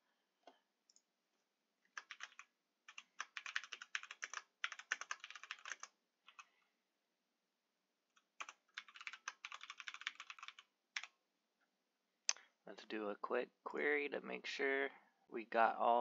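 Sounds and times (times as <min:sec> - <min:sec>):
computer keyboard typing: 0:01.9 - 0:06.5, 0:08.2 - 0:11.1.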